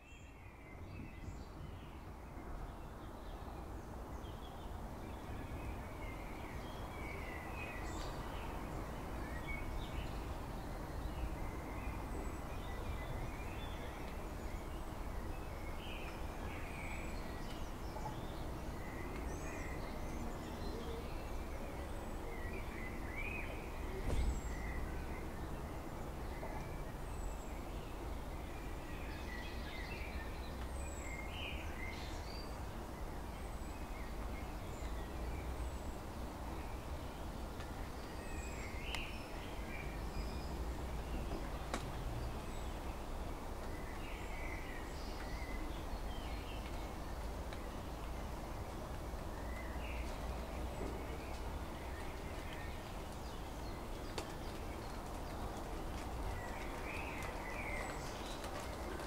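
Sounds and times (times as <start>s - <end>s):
birds chirping: 9.3s - 59.0s
low thump: 24.0s - 24.5s.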